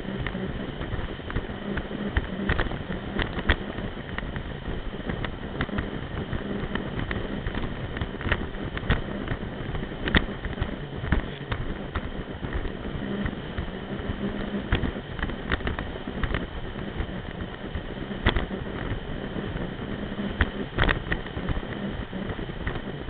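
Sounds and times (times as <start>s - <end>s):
hull slapping waves: 0.0s - 23.0s
watercraft engine running: 0.0s - 23.0s.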